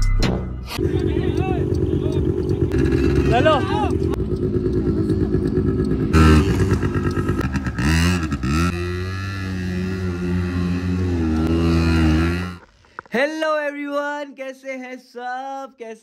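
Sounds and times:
quad bike engine revving: 0:00.8 - 0:12.6.

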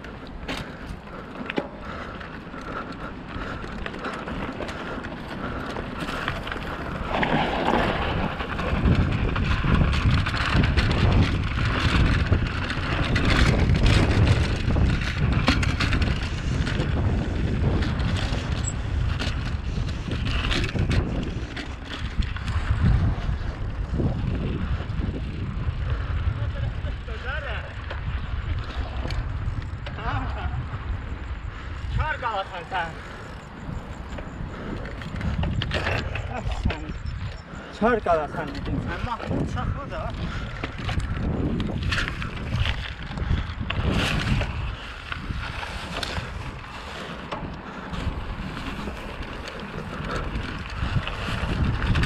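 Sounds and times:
bicycle clicks and rattles: 0:00.0 - 0:52.0
wind rushing over microphone: 0:00.0 - 0:52.0.

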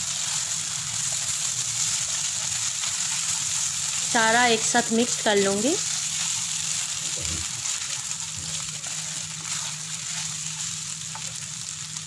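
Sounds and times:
food sizzling in a frying pan: 0:00.0 - 0:12.0
wooden spatula scraping: 0:05.4 - 0:11.4.

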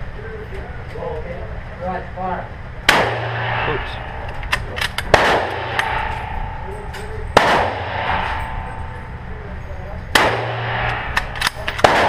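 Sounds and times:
gunshots ringing indoors: 0:02.9 - 0:09.3, 0:10.1 - 0:12.0.

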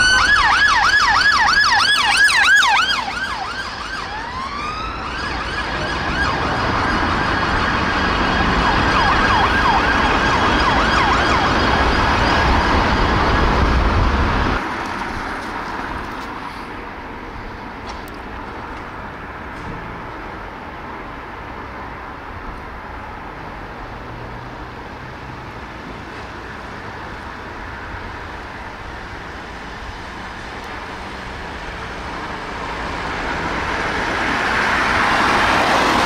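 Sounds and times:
siren yelping and wailing: 0:00.0 - 0:13.9
street background: 0:00.0 - 0:36.0
traffic noise: 0:00.0 - 0:36.0.

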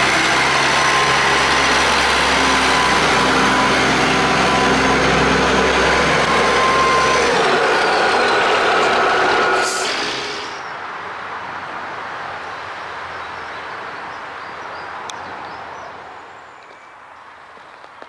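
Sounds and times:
loader engine and hydraulics whine: 0:00.0 - 0:10.7.

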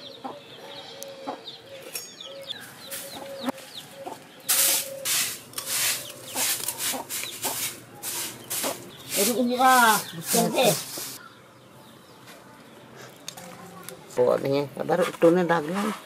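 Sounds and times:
hen clucking: 0:00.0 - 0:11.2
chicks peeping: 0:00.0 - 0:13.1
dry swishing scraping strokes: 0:04.5 - 0:11.2.

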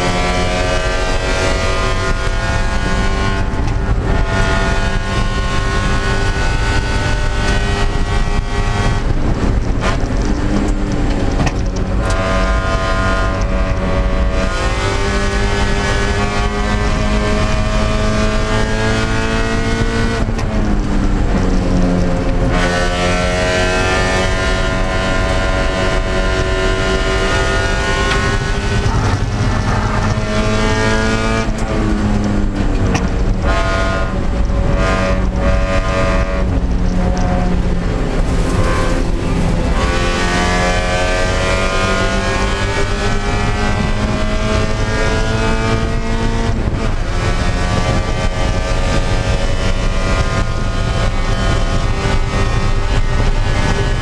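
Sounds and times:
car engine at racing revs: 0:00.0 - 0:54.0.

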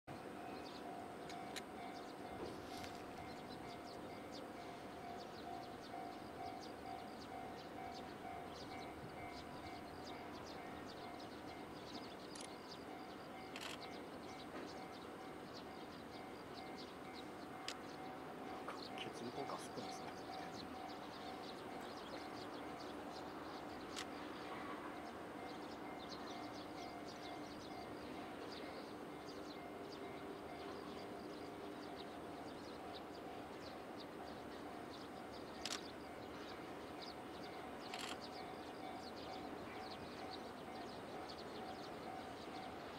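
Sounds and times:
level crossing warning bell: 0:00.2 - 0:23.0, 0:24.6 - 0:35.3, 0:38.4 - 0:42.9.

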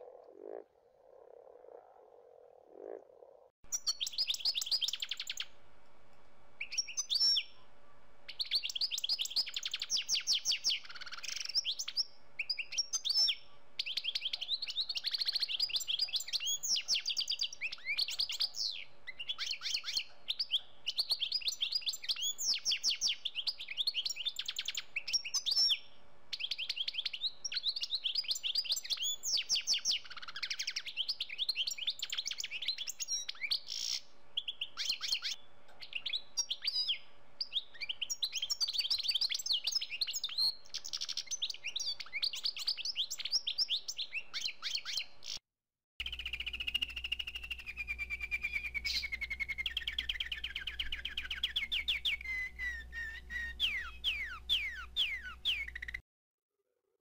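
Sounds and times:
songbirds chirping trills: 0:00.0 - 0:05.6, 0:46.0 - 0:56.0.

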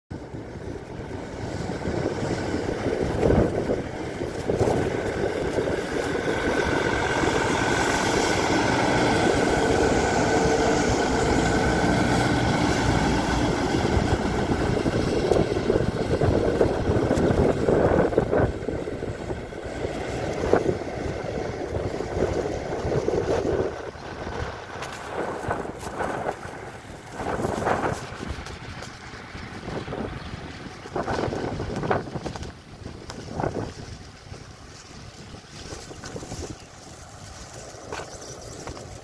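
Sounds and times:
rail car passing: 0:00.2 - 0:30.9.

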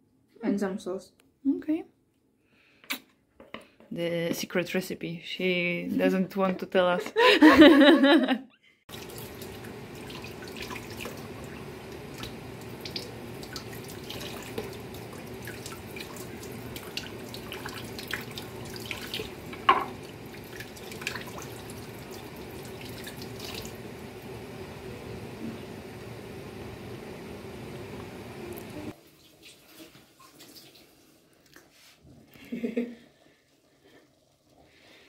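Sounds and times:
tap water running into sink: 0:08.9 - 0:24.0.

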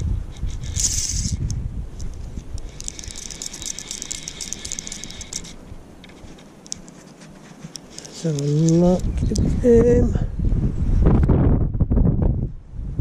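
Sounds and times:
wind buffeting microphone: 0:00.0 - 0:06.8, 0:08.0 - 0:13.0
fishing reel ratchet clicking: 0:00.5 - 0:01.5, 0:02.6 - 0:05.6.

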